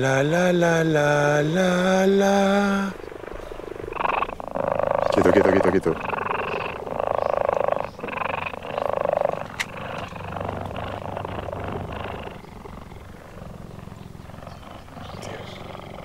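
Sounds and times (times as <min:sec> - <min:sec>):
cheetah purring: 0:00.0 - 0:16.0.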